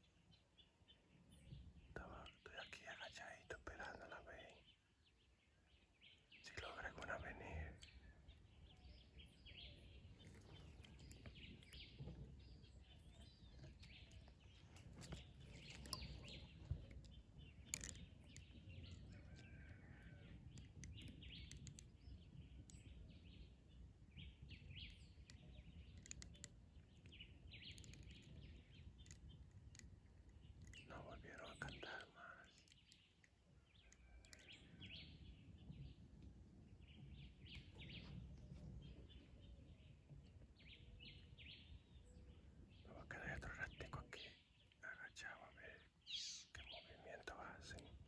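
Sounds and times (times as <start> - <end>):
birds chirping: 0.0 - 48.0
sharp clicks: 13.6 - 19.5, 20.5 - 22.0, 24.8 - 30.9, 32.4 - 34.6.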